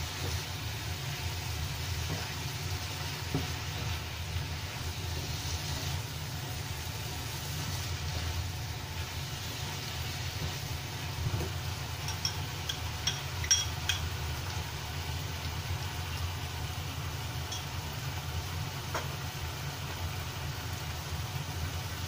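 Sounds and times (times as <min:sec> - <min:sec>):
vegetables frying in a pan: 0:00.0 - 0:22.0.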